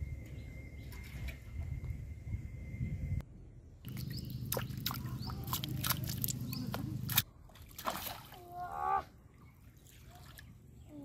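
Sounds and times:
steady low hum: 0.0s - 8.3s.

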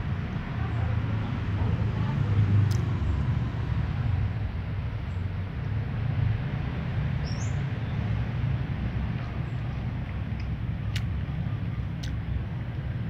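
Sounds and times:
steady low rumble: 0.0s - 13.0s
rising bird chirp: 7.2s - 8.0s.

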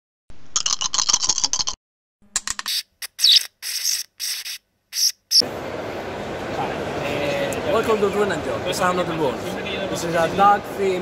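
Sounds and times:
high-pitched hissy bursts: 2.7s - 5.4s.

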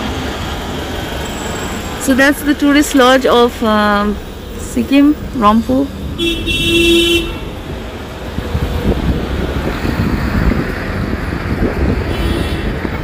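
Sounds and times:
vehicle road rumble: 0.0s - 13.0s
wind buffeting microphone: 7.4s - 13.0s.

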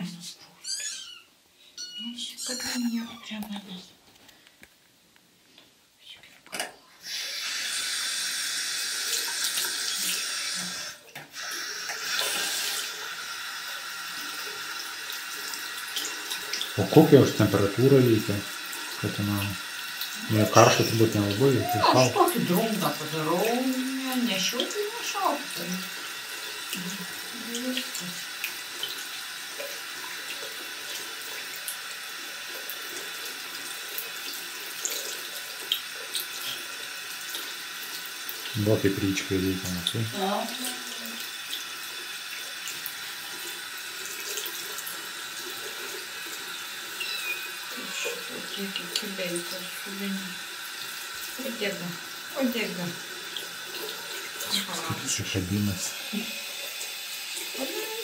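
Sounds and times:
tap water splashing into sink: 9.1s - 13.1s, 14.3s - 55.4s.

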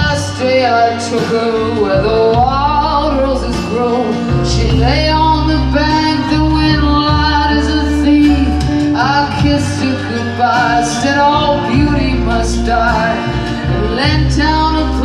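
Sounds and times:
acoustic guitar: 0.0s - 15.0s
bass guitar: 0.0s - 15.0s
drums: 0.0s - 15.0s
electric guitar: 0.0s - 15.0s
man singing: 0.0s - 15.0s.

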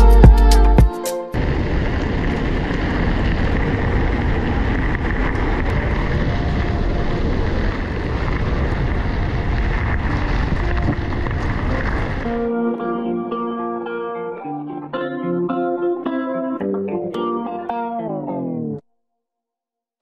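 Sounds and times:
bike rattles and ticks: 1.4s - 12.3s
wind buffeting microphone: 1.4s - 12.5s.

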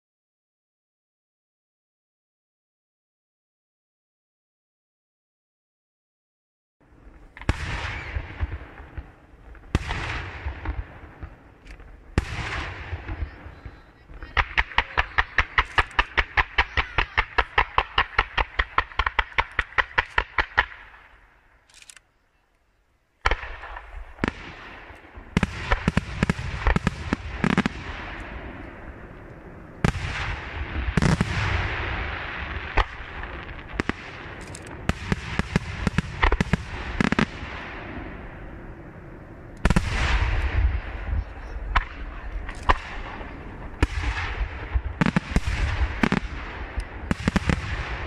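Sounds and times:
rapid volley of firework shots: 6.9s - 21.3s, 23.2s - 38.8s, 39.6s - 48.0s
firework crackle: 6.9s - 21.7s, 23.2s - 48.0s.

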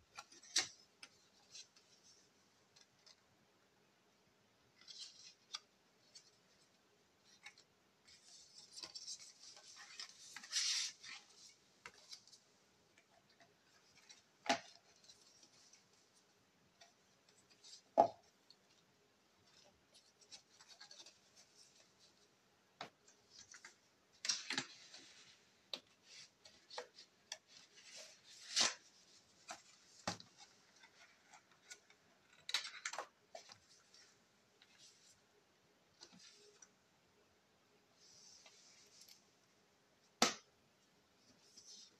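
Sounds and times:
paper rustling and sliding: 7.2s - 12.5s.

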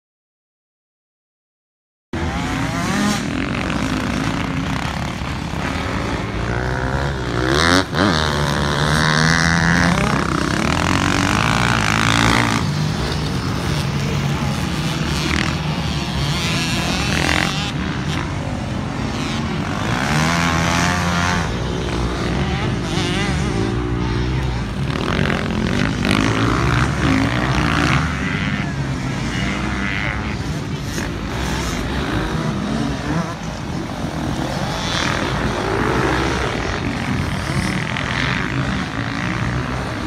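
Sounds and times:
dirt bike engines revving: 2.2s - 40.0s.

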